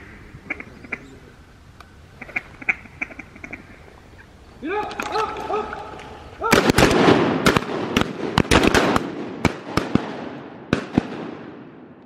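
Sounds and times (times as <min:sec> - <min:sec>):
shotgun shots: 0:06.4 - 0:11.8.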